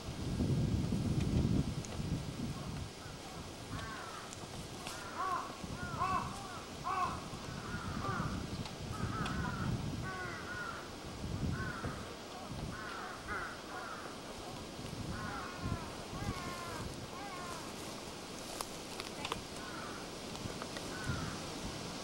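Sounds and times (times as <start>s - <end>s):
crows cawing: 3.7s - 10.9s, 11.5s - 12.1s, 12.7s - 14.2s, 15.1s - 17.9s, 19.6s - 20.1s, 20.9s - 21.4s.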